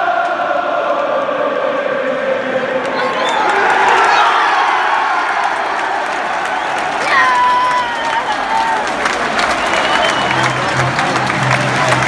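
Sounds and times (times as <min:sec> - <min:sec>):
stadium crowd cheering: 0:00.0 - 0:12.0
crowd clapping: 0:02.8 - 0:12.0.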